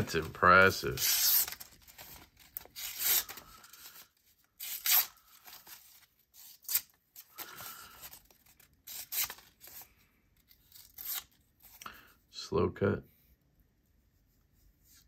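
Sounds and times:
knife slicing paper: 0.8s - 1.7s, 4.6s - 7.9s, 8.8s - 9.8s.

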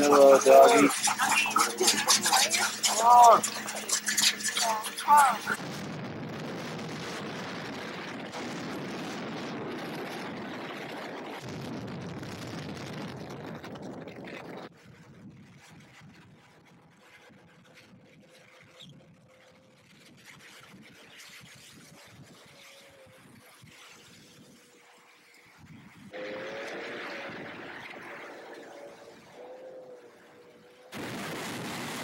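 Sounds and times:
snowmobile engine: 0.0s - 11.4s, 14.1s - 32.0s.

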